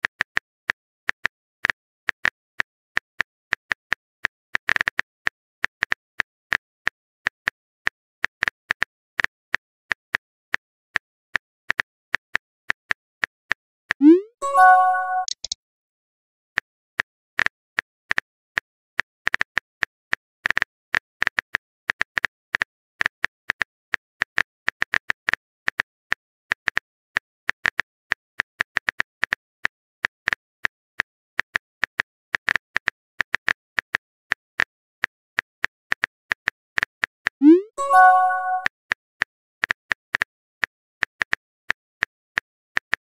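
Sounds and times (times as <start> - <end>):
rising message-sent blip: 14.0 - 15.4, 37.4 - 38.7.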